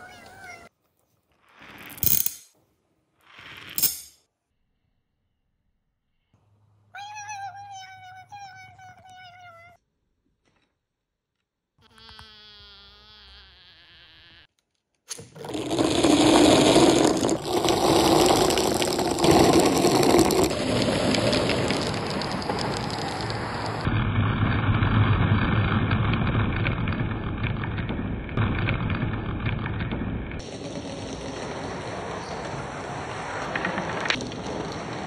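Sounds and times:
glass marbles rattling down run: 15.1s - 23.9s.

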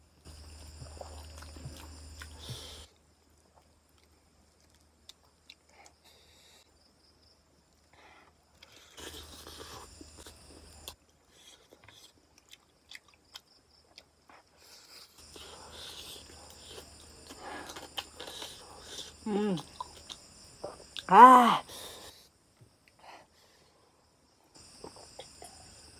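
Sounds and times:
person chewing food: 0.3s - 6.5s, 7.7s - 21.1s.

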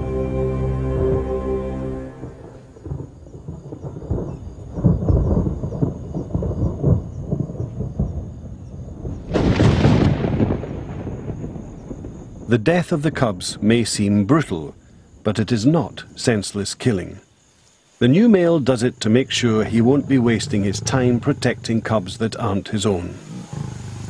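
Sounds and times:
soft music: 0.0s - 3.0s
thunder rumbling: 0.7s - 16.2s, 18.3s - 24.0s
thunder crack: 2.0s - 13.8s.

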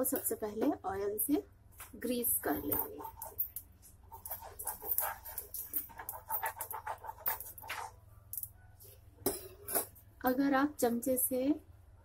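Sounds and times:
spoon scraping iron griddle: 2.4s - 8.0s.

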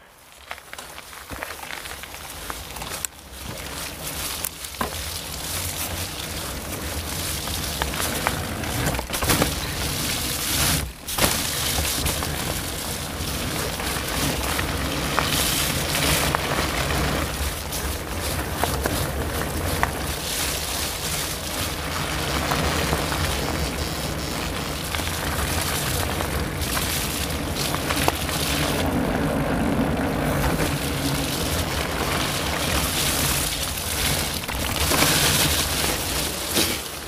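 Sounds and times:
tyres rolling on wet trail: 0.0s - 37.0s.

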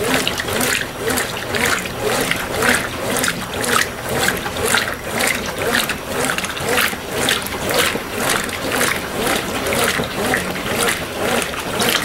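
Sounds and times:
washing machine sloshing: 0.0s - 12.0s.

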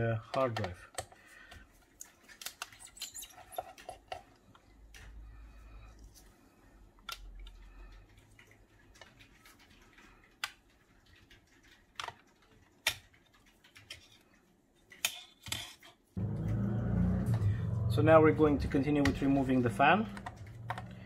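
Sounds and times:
steady low hum: 16.2s - 21.0s.

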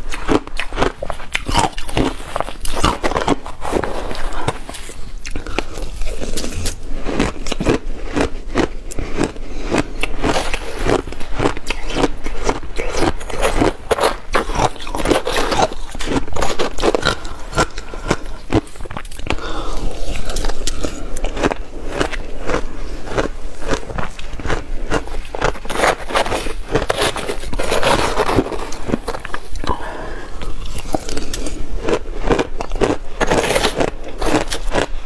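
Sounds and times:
chewing crushed ice: 0.0s - 35.0s.

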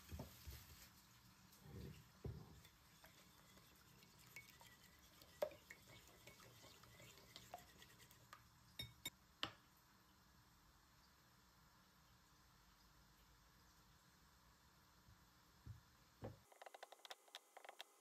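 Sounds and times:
whisk clinking against bowl: 2.6s - 9.1s.

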